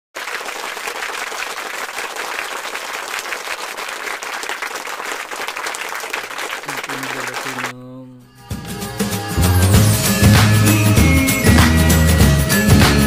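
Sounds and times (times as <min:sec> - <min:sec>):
crowd applauding: 0:00.2 - 0:07.8.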